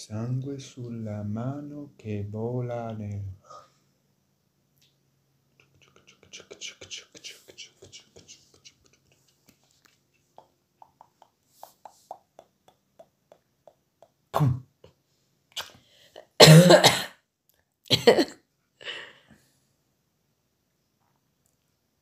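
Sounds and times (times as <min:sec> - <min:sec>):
man clearing his throat: 0:14.4 - 0:14.7, 0:16.4 - 0:17.1
man coughing: 0:16.4 - 0:17.1, 0:17.9 - 0:18.3.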